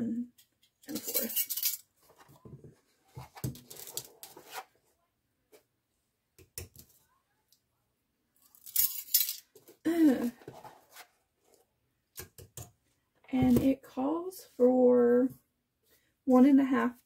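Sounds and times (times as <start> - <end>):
metal spoons clinking: 0.9 - 1.9, 8.6 - 9.5
scraping and rustling: 0.9 - 4.9, 8.6 - 11.6.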